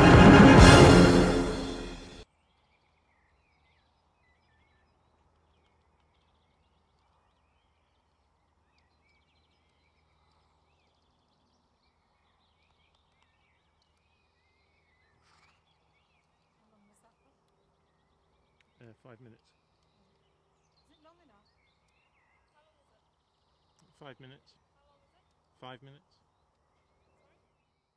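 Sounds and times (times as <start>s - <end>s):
orchestral music: 0.0s - 2.2s
faint birdsong: 2.3s - 27.9s.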